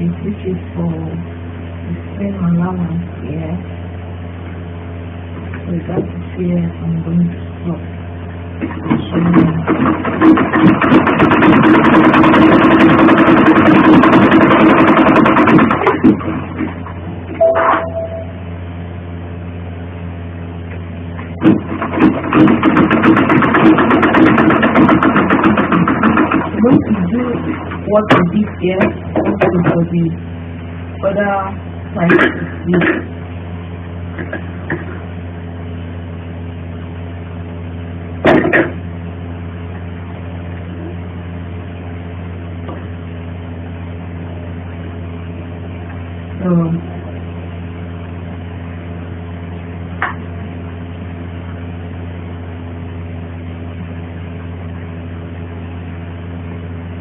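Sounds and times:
low mechanical hum: 0.0 - 57.0
sewing machine stitching: 9.3 - 16.2
low hum: 17.1 - 21.2.

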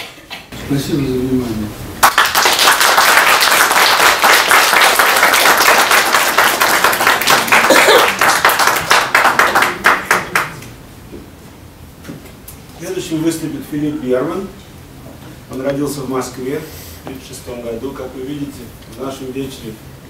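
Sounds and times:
audience applauding: 2.0 - 10.6.

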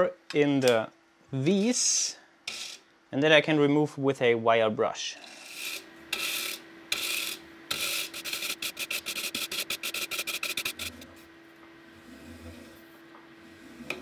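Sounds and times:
wire brush scrubbing plastic: 6.2 - 11.1.

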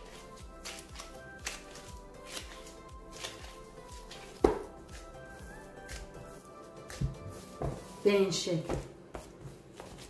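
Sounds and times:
background music: 0.0 - 8.8
soft thuds of dough kneaded: 6.9 - 10.0.

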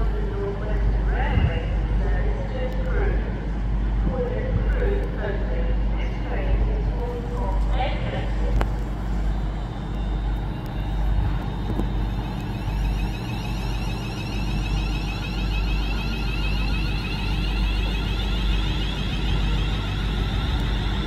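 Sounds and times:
train rumbling: 0.0 - 21.0
high whine: 8.6 - 21.0.

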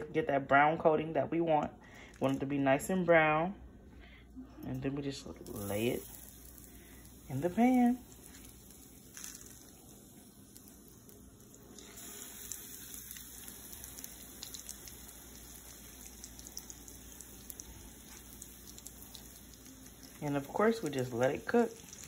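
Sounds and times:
chicken sizzling in oil: 5.4 - 22.0.

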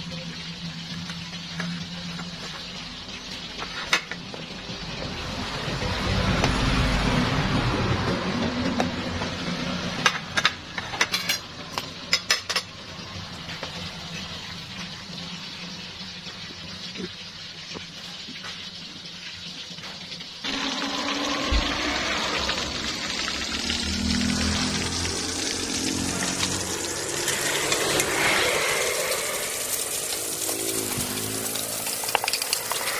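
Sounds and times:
fish frying in oil: 0.0 - 32.9
metal utensils clinking on plates: 10.0 - 12.7.

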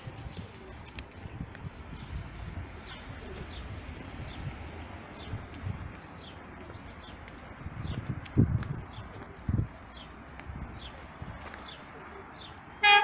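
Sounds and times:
small birds chirping: 0.2 - 12.6.

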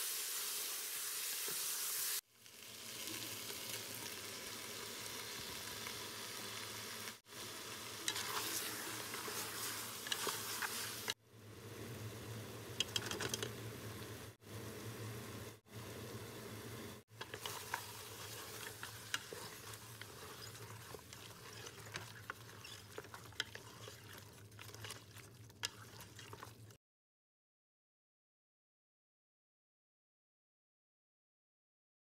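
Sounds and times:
meat sizzling in a metal pot: 0.0 - 11.2, 17.1 - 26.7
wooden spoon scraping a pot: 8.0 - 11.2, 17.1 - 26.8.

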